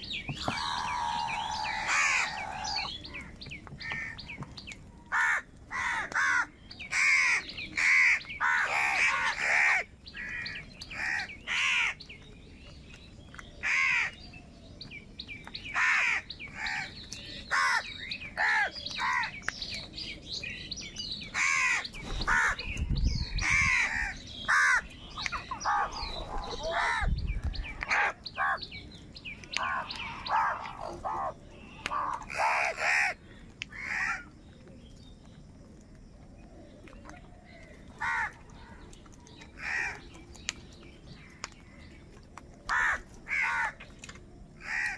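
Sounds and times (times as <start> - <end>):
crows cawing: 0.4 - 2.9, 5.1 - 12.0, 13.6 - 14.2, 15.7 - 16.9, 17.5 - 19.3, 21.4 - 22.6, 23.4 - 24.9, 27.9 - 28.6, 29.6 - 34.3, 38.0 - 38.4, 39.6 - 40.0, 42.7 - 43.8, 44.6 - 44.9.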